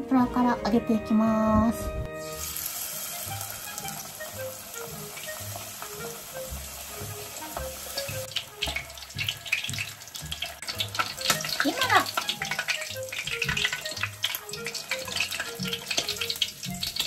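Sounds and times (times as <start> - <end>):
soft background music: 0.0 - 17.0
food sizzling in hot oil: 2.2 - 17.0
oil crackling and spattering: 2.4 - 17.0.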